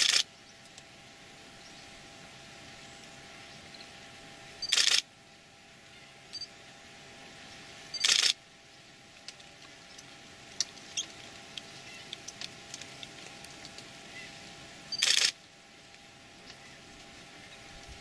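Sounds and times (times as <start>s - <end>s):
camera shutter bursts: 0.0s - 0.3s, 4.6s - 5.0s, 8.0s - 8.4s, 14.9s - 15.4s
steady background hiss: 0.0s - 18.0s.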